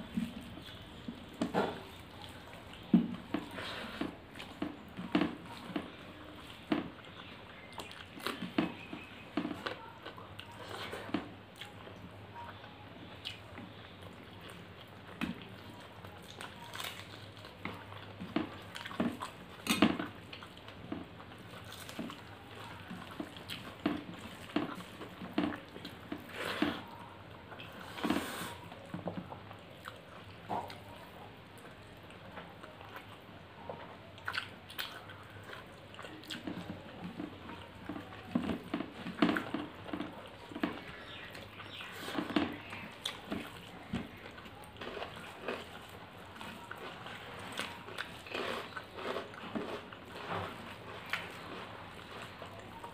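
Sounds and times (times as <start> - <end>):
wet chewing and lip smacks: 34.2 - 36.8
fingers squishing rice: 34.2 - 52.9.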